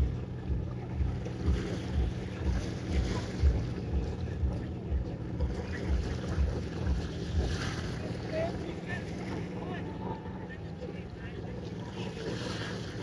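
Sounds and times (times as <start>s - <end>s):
boat engines humming: 0.0s - 13.0s
wind buffeting microphone: 0.0s - 13.0s.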